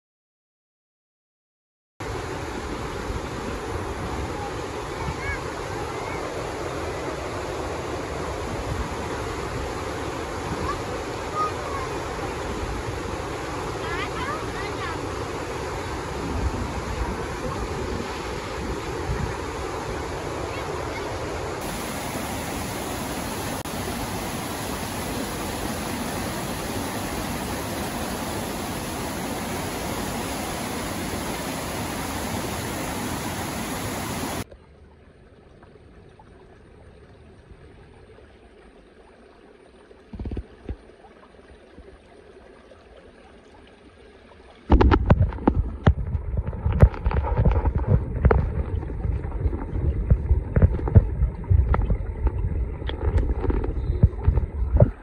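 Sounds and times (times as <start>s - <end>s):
waterfall rushing: 19.6s - 34.4s
stream trickling over stones: 21.6s - 55.0s.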